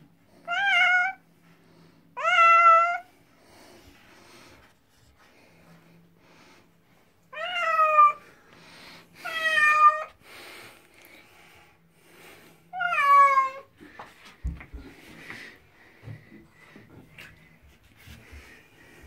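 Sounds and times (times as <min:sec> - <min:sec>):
cat meowing loudly: 0:00.5 - 0:01.2, 0:02.2 - 0:03.1, 0:07.3 - 0:08.2, 0:12.8 - 0:13.7.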